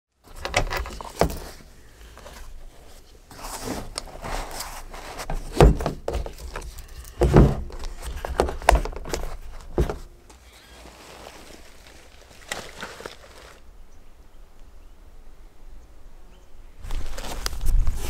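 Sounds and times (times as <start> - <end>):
gear clicking and scraping on plastic: 3.3 - 13.6.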